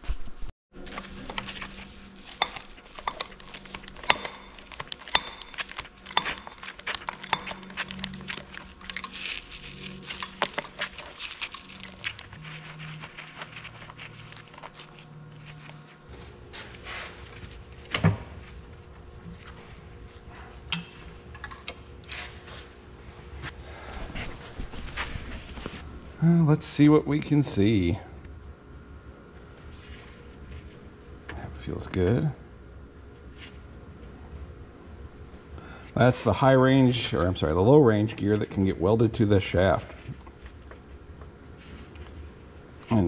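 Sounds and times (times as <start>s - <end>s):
metal tools clanking on metal: 2.4s - 11.9s.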